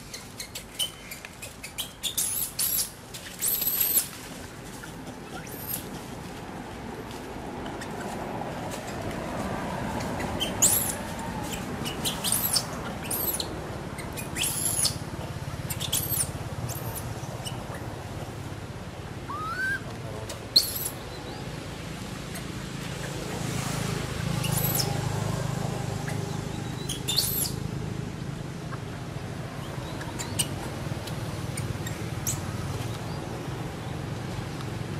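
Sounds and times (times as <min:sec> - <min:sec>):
small animal squeaking: 0:00.0 - 0:04.1, 0:04.8 - 0:05.9, 0:09.9 - 0:18.0, 0:19.3 - 0:21.4, 0:24.3 - 0:25.0, 0:26.0 - 0:27.6, 0:29.6 - 0:32.6.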